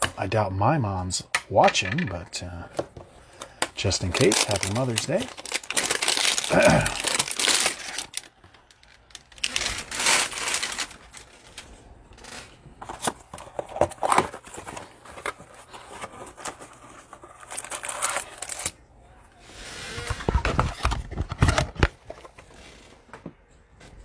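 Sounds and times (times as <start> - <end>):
plastic wrapper tearing and crinkling: 3.7 - 13.1, 13.9 - 18.8.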